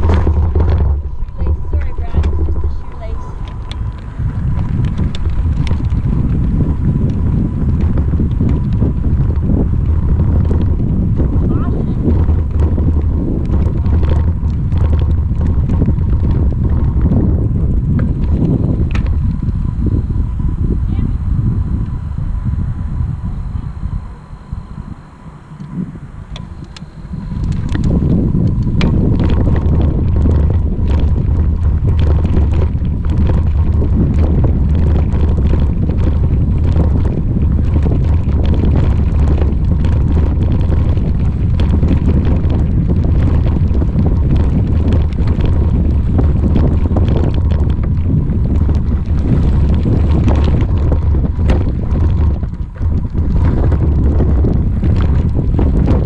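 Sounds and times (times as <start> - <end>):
knocks and rattles from bumps: 0.0 - 6.1
faint steady whine: 0.0 - 56.0
wind buffeting microphone: 0.0 - 56.0.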